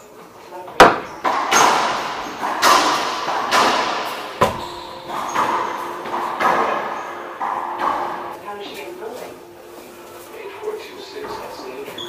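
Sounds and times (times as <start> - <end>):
racquetball hitting racquets and walls: 0.7 - 8.5
booming echo in a court: 0.8 - 8.3.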